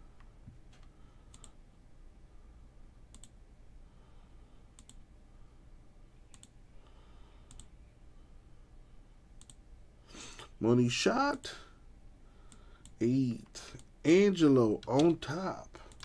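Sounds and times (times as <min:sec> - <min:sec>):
faint computer mouse clicks: 0:00.2 - 0:01.6, 0:03.1 - 0:03.4, 0:04.8 - 0:05.0, 0:06.3 - 0:06.6, 0:07.4 - 0:07.8, 0:09.4 - 0:09.6.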